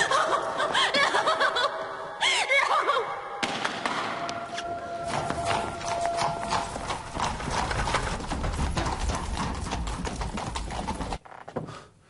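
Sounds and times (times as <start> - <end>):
hooves clip-clopping on cobblestones: 4.9 - 11.2
carriage wheels rumbling: 5.0 - 11.4.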